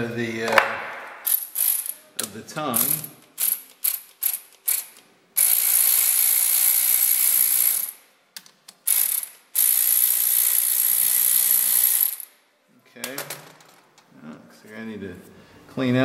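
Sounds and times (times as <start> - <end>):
power ratchet spinning: 1.2 - 2.0, 2.8 - 8.0, 8.9 - 12.3.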